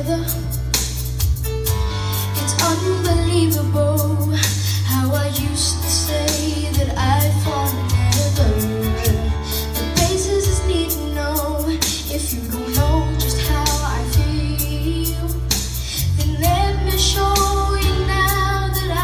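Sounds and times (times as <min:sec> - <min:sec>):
backing music with bass and beat: 0:00.0 - 0:19.0
boy singing into microphone: 0:09.9 - 0:15.5, 0:16.2 - 0:19.0.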